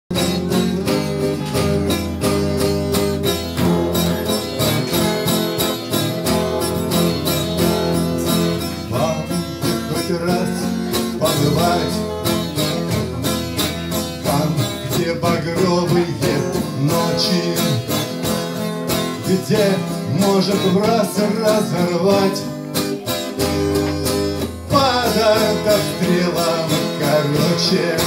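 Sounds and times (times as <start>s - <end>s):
acoustic guitars strumming: 0.1s - 28.0s.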